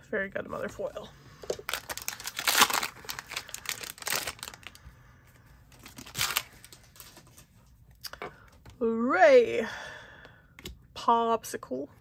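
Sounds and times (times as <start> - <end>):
cards rustling out of wrapper: 1.4 - 4.8, 5.7 - 7.7
plastic wrapper tearing crinkle: 1.5 - 4.8, 5.7 - 7.4.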